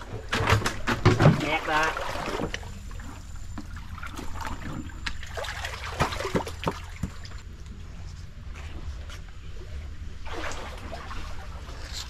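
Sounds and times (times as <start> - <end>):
water splashing and trickling: 0.0 - 7.5, 10.1 - 12.0.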